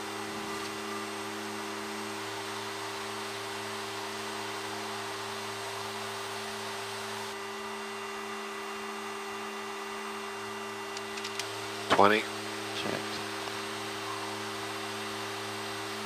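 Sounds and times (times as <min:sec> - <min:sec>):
turboprop engines droning: 0:00.0 - 0:16.0.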